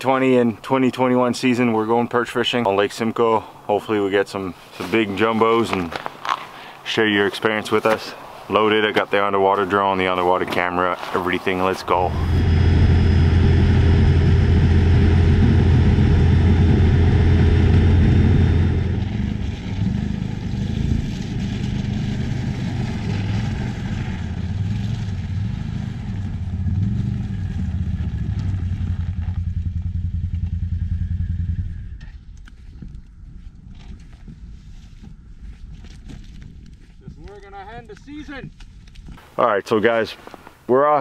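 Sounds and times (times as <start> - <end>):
atv engine running: 11.9 - 32.4.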